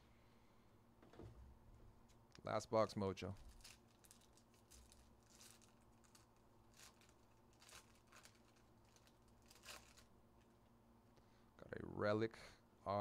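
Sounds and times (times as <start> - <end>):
plastic wrapper crinkling: 3.4 - 10.5.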